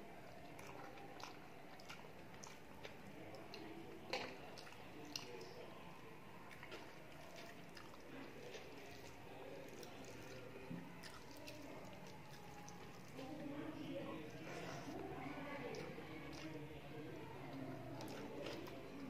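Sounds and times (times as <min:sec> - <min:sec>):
person chewing: 0:00.6 - 0:05.4.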